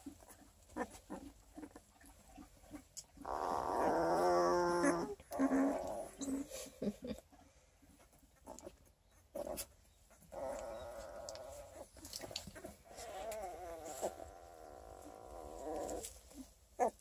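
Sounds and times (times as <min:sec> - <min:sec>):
puppy whining: 0:03.2 - 0:06.6, 0:08.6 - 0:17.0.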